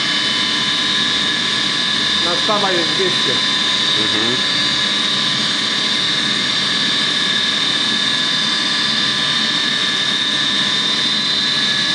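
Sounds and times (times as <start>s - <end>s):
industrial machine running: 0.0s - 5.4s
high-pitched machine whines: 0.0s - 11.9s.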